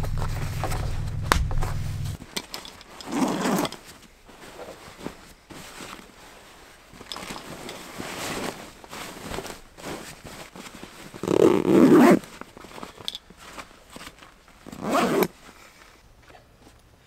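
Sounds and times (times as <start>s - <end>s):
backpack fabric rustling: 2.1s - 15.7s
zipper pulled: 3.0s - 3.8s, 11.2s - 12.3s, 14.7s - 15.4s.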